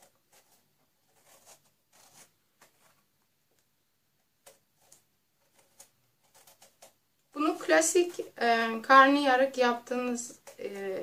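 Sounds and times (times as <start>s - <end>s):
knife scraping eggplant skin: 0.0s - 3.0s, 4.4s - 8.4s, 9.8s - 11.0s.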